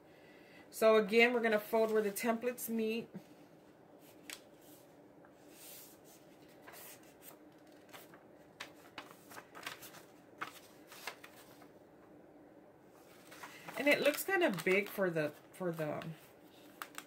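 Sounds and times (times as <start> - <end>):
paper wrapper rustling and crackling: 6.2 - 11.7, 13.0 - 17.0.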